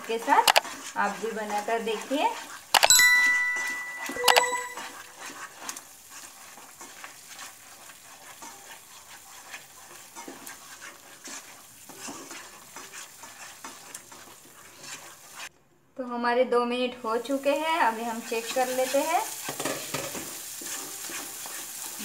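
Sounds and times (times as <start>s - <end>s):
light frying sizzle: 0.0s - 2.7s, 4.9s - 15.5s, 16.8s - 22.0s
spatula scraping paste in pan: 0.1s - 2.7s, 5.0s - 15.5s, 18.1s - 22.0s
short ringing ding: 2.9s - 4.9s.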